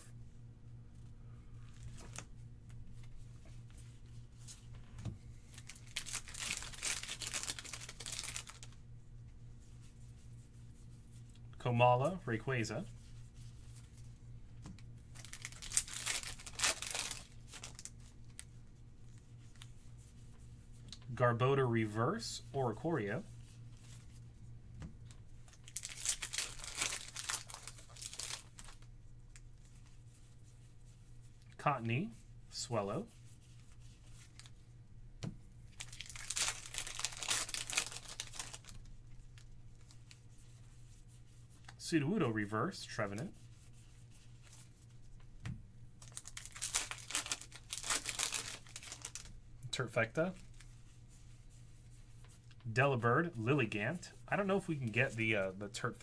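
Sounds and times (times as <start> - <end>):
foil pack crinkling: 5.4 - 8.8, 15.1 - 18.5, 25.5 - 28.9, 35.7 - 40.2, 46.0 - 49.4.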